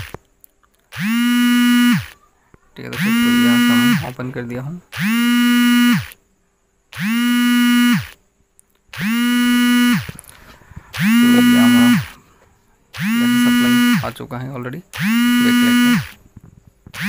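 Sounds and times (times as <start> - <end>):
electronic buzzer beeping: 0.9 - 2.2, 2.8 - 4.2, 4.9 - 6.2, 6.9 - 8.2, 8.9 - 10.2, 10.9 - 12.2, 13.0 - 14.2, 14.9 - 16.2.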